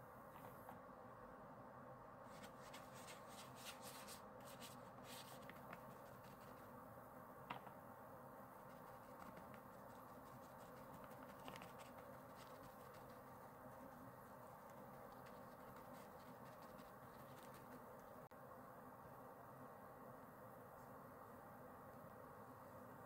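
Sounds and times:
paper rustling and crinkling: 2.3s - 6.7s.

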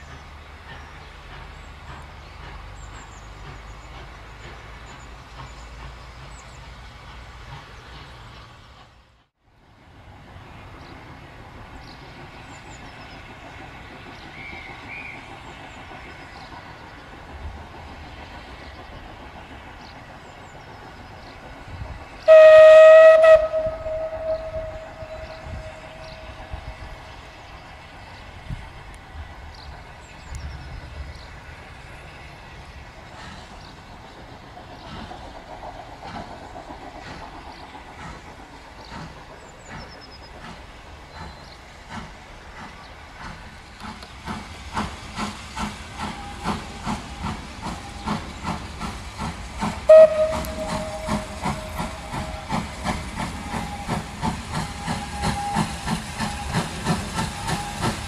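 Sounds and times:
steam locomotive exhaust beats: 0.0s - 9.3s, 9.9s - 58.0s
steam hissing: 9.9s - 58.0s
steam whistle blast: 22.3s - 26.6s, 49.9s - 58.0s.

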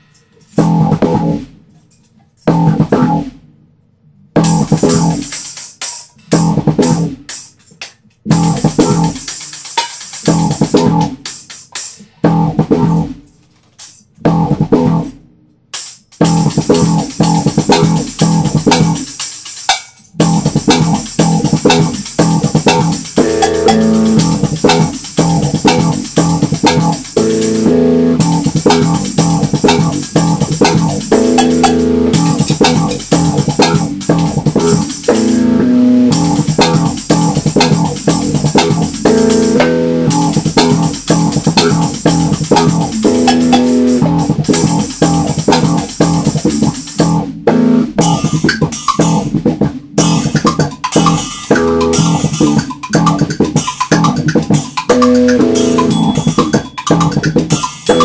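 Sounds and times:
band with guitar bass and drums: 4.4s - 5.3s, 6.3s - 7.2s, 8.3s - 9.4s, 10.2s - 11.2s, 16.2s - 19.1s, 20.2s - 58.0s.

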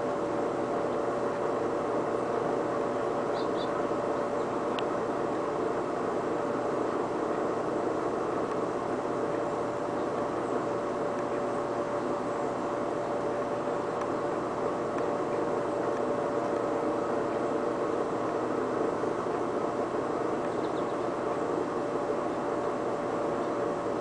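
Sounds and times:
air conditioner and fan whirring: 0.0s - 24.0s.

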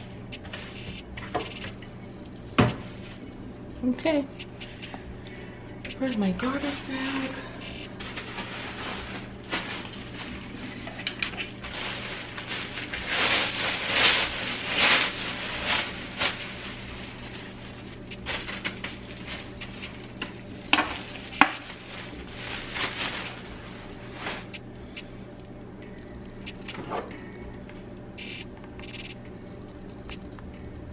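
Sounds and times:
brush scraping and rustling: 8.0s - 17.4s.

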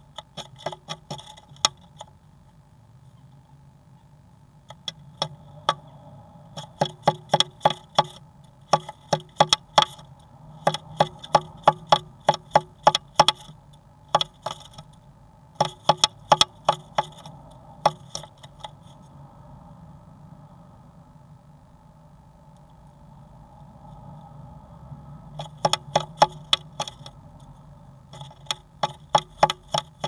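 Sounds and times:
bird pecking on wood: 0.1s - 2.1s, 4.7s - 15.0s, 15.6s - 19.0s, 25.3s - 27.5s, 28.1s - 30.0s.

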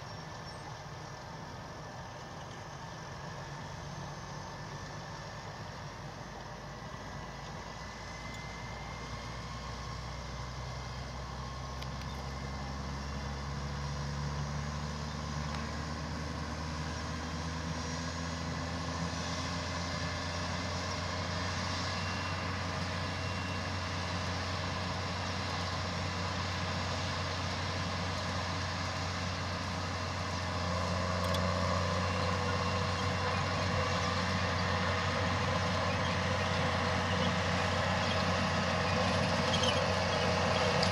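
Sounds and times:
tractor engine running under load: 0.0s - 40.9s
forage wagon pickup gathering grass: 8.8s - 40.9s.

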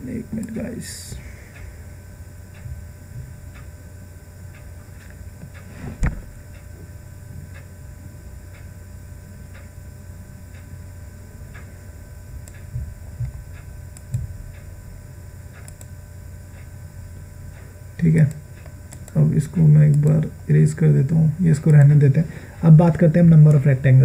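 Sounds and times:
electrical hum: 0.0s - 24.0s
low thumps: 2.6s - 3.5s, 5.8s - 6.4s
faint ticking: 17.5s - 20.3s.

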